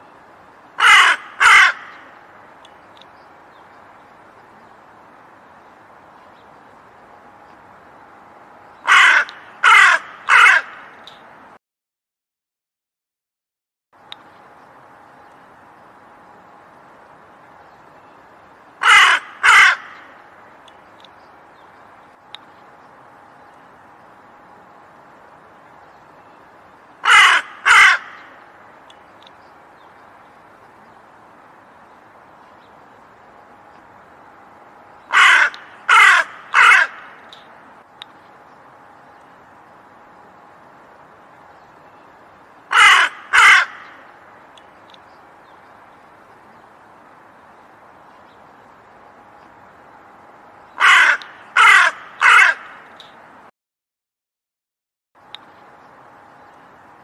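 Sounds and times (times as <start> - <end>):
faint steady hiss: 0.0 - 11.6, 14.0 - 53.5, 55.2 - 57.0
crow cawing: 0.8 - 2.1, 8.9 - 11.0, 18.8 - 20.2, 27.0 - 28.4, 35.1 - 37.2, 42.7 - 44.1, 50.8 - 52.8.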